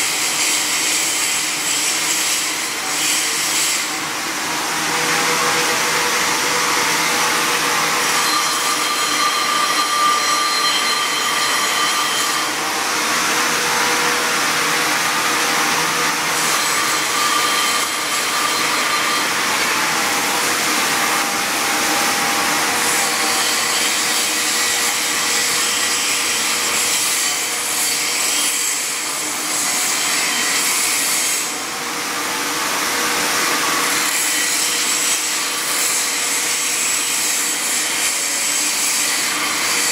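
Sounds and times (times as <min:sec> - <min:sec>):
welding arc hissing: 0:00.0 - 0:04.0.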